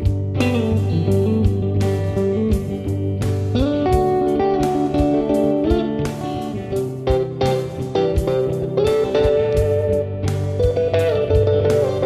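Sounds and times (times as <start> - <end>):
guitar-led instrumental music: 0.0 - 12.0.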